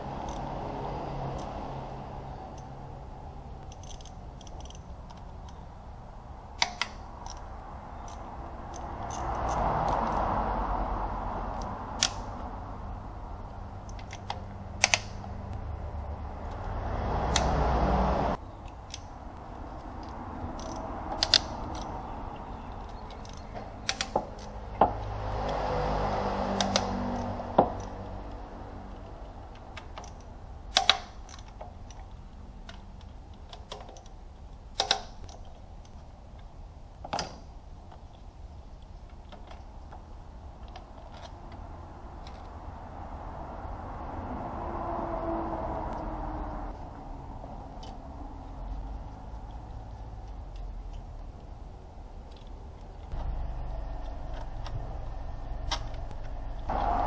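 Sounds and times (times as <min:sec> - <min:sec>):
tools and engine parts clinking: 0:03.6 - 0:05.9, 0:06.6 - 0:10.3, 0:13.4 - 0:15.3, 0:18.4 - 0:41.6.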